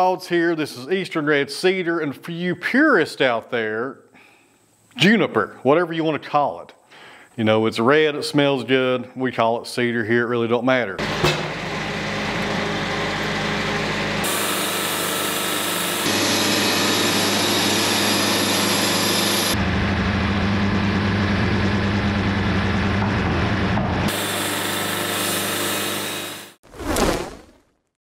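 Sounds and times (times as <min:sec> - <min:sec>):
band sawmill sawing log: 0:11.0 - 0:19.6, 0:24.1 - 0:26.6.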